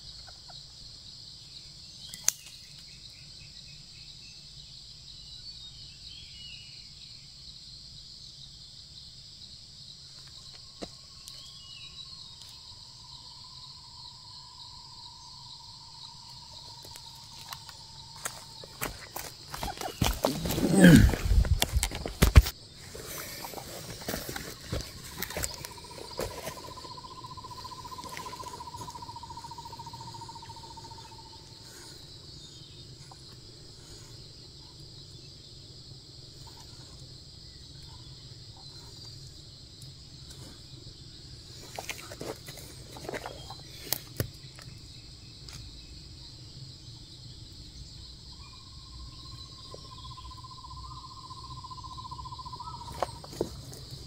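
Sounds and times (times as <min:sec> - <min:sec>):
insects droning: 0:00.0 - 0:54.0
twigs snapping and clicking: 0:02.1 - 0:02.9, 0:16.8 - 0:22.6.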